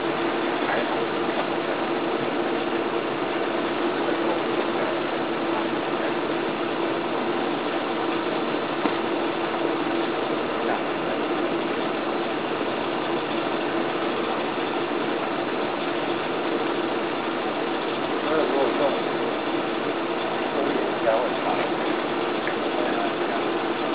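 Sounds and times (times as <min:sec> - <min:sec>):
air blower whirring: 0:00.0 - 0:23.9.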